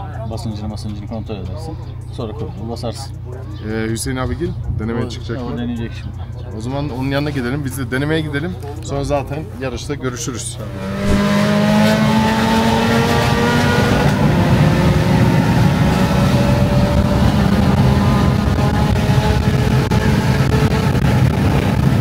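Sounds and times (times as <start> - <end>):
car engine pulling under power: 10.6 - 22.0.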